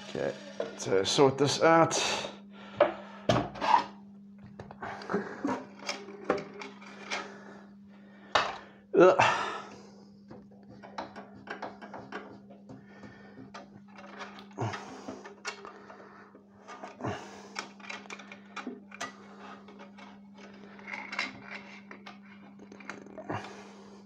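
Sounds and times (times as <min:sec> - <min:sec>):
steady low hum: 0:00.0 - 0:24.0
clicks and taps on bandsaw: 0:10.3 - 0:13.7.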